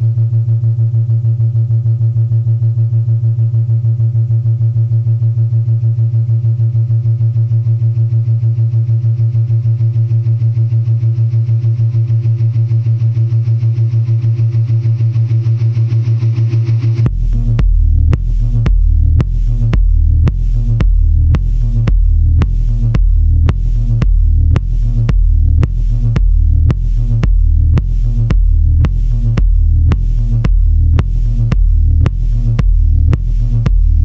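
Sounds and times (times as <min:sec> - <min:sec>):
pulsing synthesizer drone: 0:00.0 - 0:34.0.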